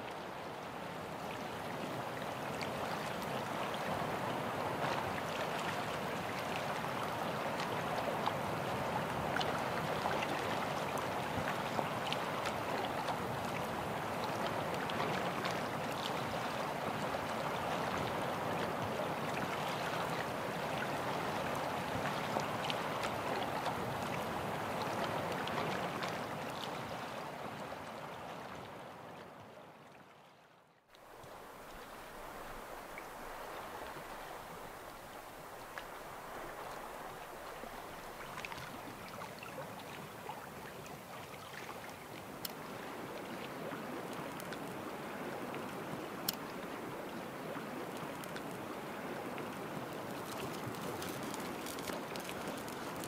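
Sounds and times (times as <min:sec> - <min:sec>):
lake water lapping at shore: 0:00.1 - 0:29.2, 0:31.0 - 0:53.0
small water splashes: 0:31.0 - 0:53.0.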